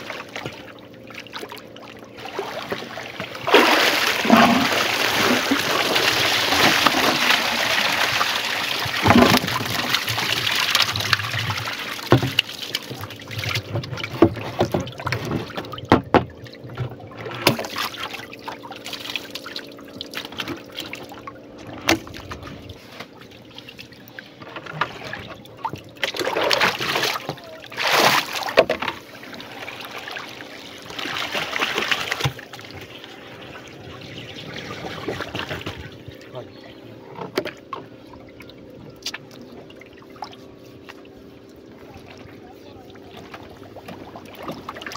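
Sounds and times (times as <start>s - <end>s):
short splashes: 0.0s - 15.8s, 17.1s - 36.4s
water pouring and splashing: 0.0s - 36.4s, 39.0s - 44.9s.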